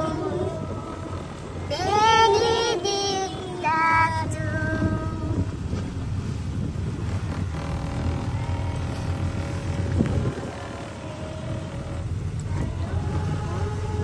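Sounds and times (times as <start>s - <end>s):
boat engine rumbling: 0.0s - 14.0s.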